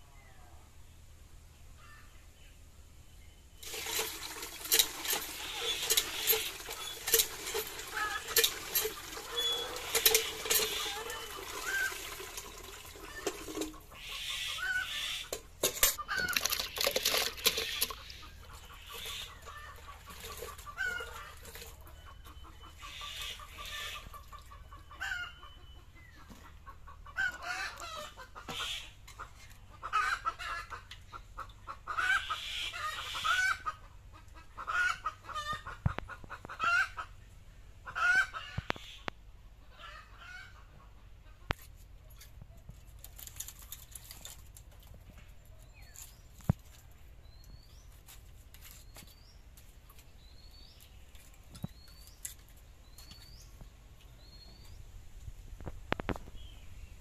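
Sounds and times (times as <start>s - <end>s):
water splashing into metal bucket: 3.6s - 13.9s, 15.3s - 21.9s
chickens clucking: 3.6s - 54.8s.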